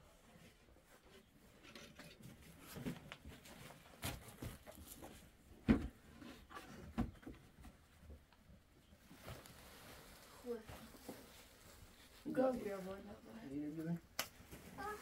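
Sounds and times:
cloth rustling: 9.0 - 13.3.

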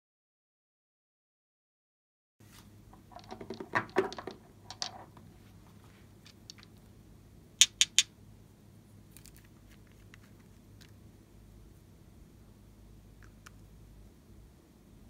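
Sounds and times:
small glass bottles clattering: 3.0 - 5.2
bottle cap clicks: 7.6 - 8.1.

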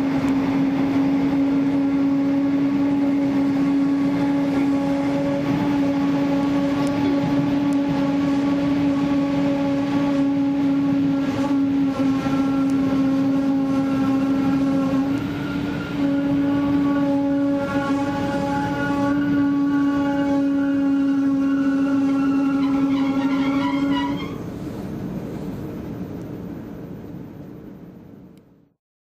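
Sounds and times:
train wheels and air rushing: 0.0 - 22.8
locomotive whine: 0.0 - 28.7.

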